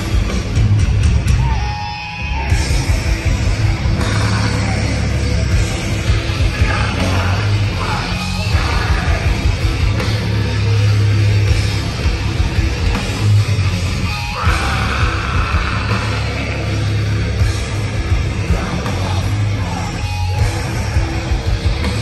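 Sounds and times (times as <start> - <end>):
bass guitar: 0.0 - 22.0
distorted electric guitar: 0.0 - 22.0
drums: 0.0 - 22.0
screamed vocals: 1.3 - 2.9, 4.0 - 5.2, 6.5 - 9.4, 14.1 - 17.0.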